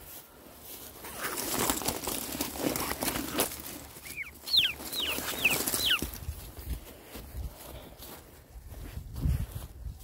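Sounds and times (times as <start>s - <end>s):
rustling of dry brush and leaves: 0.0s - 10.0s
quail chirping: 1.0s - 1.7s, 2.7s - 6.4s.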